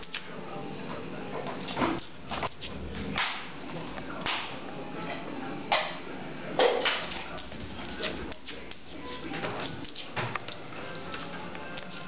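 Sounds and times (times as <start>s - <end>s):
steady background noise: 0.0s - 12.0s
dog paws tapping on tile floor: 6.6s - 12.0s.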